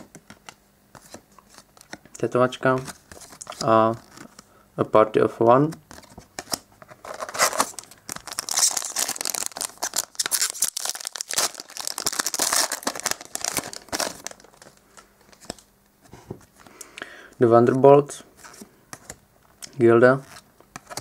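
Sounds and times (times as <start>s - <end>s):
foil wrapper crinkling and tearing: 7.0s - 14.8s.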